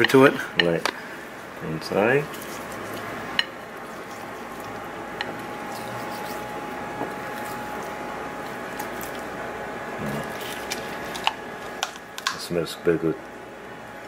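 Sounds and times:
fingers squishing on fish skin: 3.8s - 9.4s.

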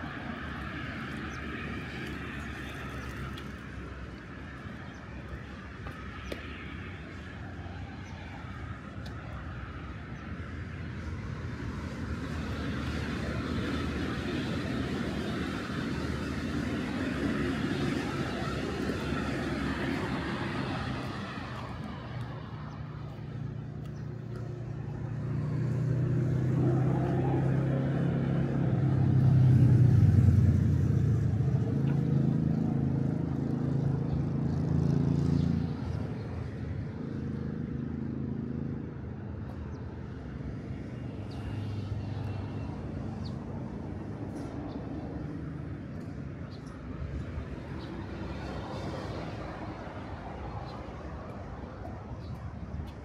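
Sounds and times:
passing vehicle rumble: 0.0s - 53.0s.

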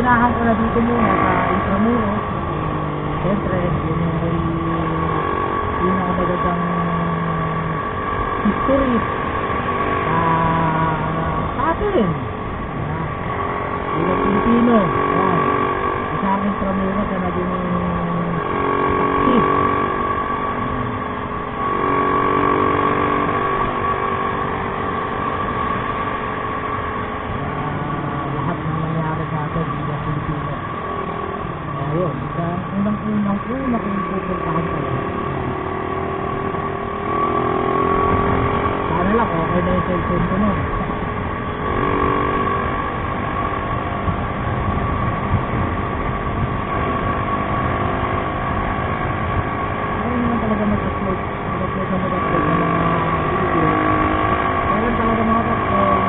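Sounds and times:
motorcycle engine running: 0.0s - 56.0s
road and wind noise: 0.0s - 56.0s
thin steady whine: 0.0s - 56.0s
wind noise: 34.5s - 51.4s.

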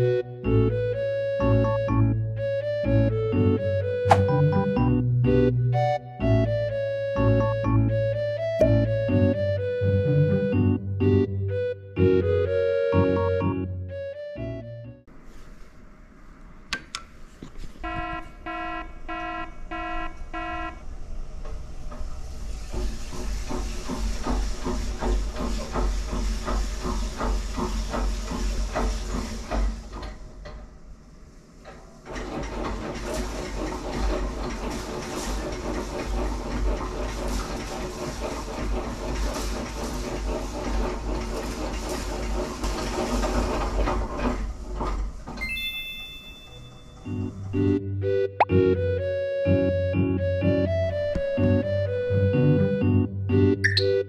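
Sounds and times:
low machine rumble: 0.0s - 16.7s, 18.4s - 45.3s, 46.4s - 53.6s
short electronic beeps: 53.6s - 54.0s.

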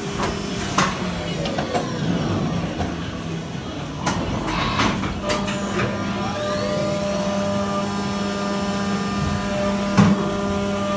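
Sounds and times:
machine whine: 4.3s - 10.9s.

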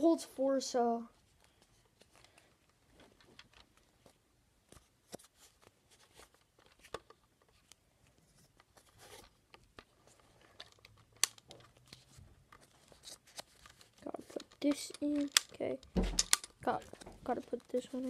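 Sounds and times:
plastic toy blaster clicks and rattles: 10.6s - 11.7s, 13.4s - 18.0s.

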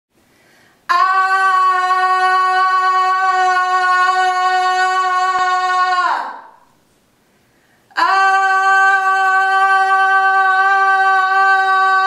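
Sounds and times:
woman singing a high note: 8.0s - 12.0s.

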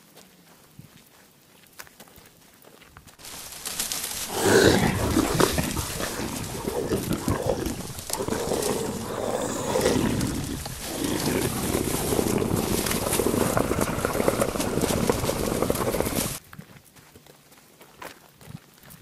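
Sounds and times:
animal-like growling and roaring: 4.0s - 16.4s.

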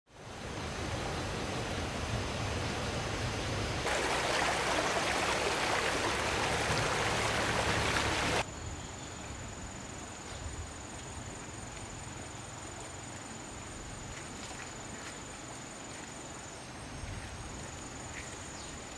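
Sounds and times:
stream water running: 0.1s - 8.5s, 10.0s - 18.9s.

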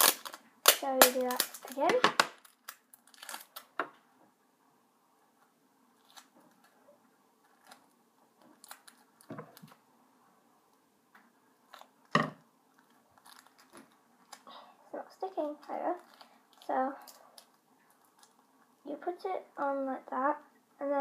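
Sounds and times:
tape rustling and clicks: 0.0s - 4.0s, 7.4s - 9.8s, 11.1s - 14.5s, 15.4s - 18.5s.

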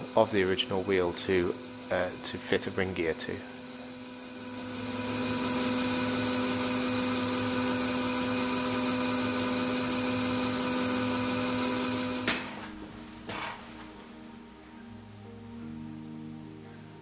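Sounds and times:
metal lathe motor hum and whine: 0.0s - 12.8s.

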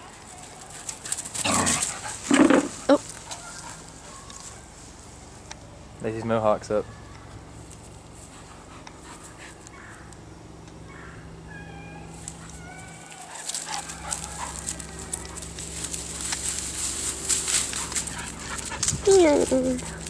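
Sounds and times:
rustling and crackling in grass: 0.0s - 6.1s, 7.4s - 10.2s, 12.1s - 20.0s
dogs whimpering and yipping: 0.2s - 4.7s, 10.9s - 15.5s, 17.7s - 20.0s.

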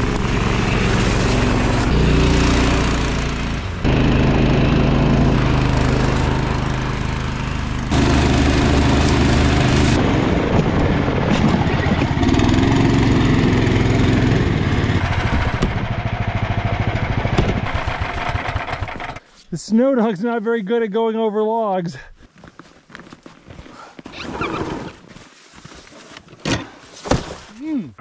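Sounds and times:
small engine running: 0.0s - 19.3s.

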